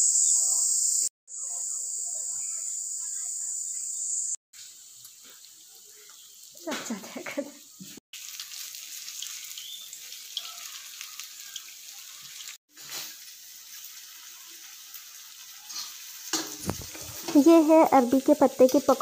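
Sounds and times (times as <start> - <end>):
food frying in hot oil: 4.6 - 19.0.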